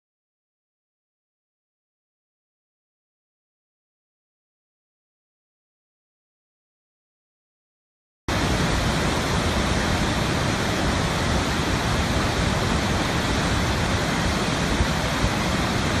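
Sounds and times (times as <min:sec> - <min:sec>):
waterfall rushing: 0:08.3 - 0:16.0.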